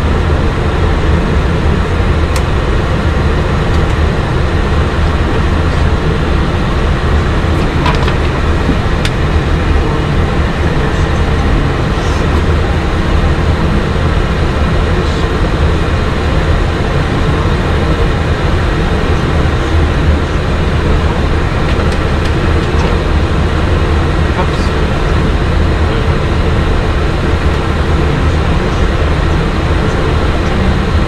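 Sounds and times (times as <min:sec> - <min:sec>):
low rumble: 0:00.0 - 0:31.0.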